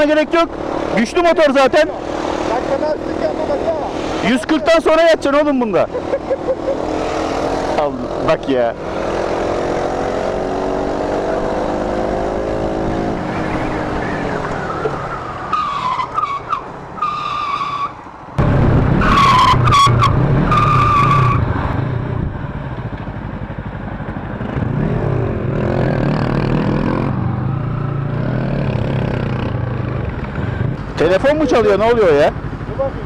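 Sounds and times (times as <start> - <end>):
high-pitched squealing tones: 13.0 - 18.0, 18.9 - 21.5
wind noise: 18.2 - 22.7, 29.6 - 31.0
motorcycle engine running: 22.0 - 33.0.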